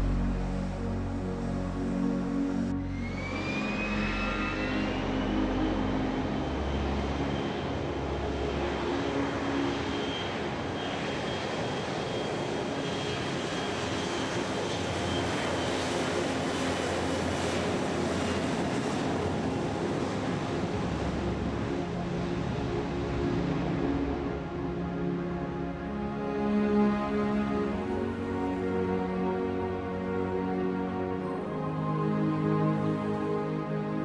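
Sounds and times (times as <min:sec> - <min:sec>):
jet engines roaring with whine: 0:00.0 - 0:34.0.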